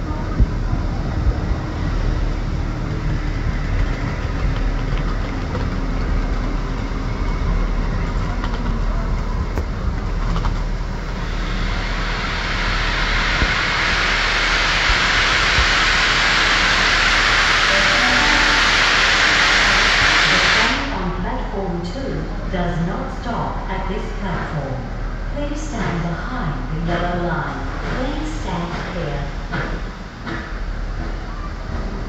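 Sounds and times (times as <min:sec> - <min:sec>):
steam locomotive low rumble: 0:00.0 - 0:32.0
steam venting hiss: 0:11.0 - 0:21.1.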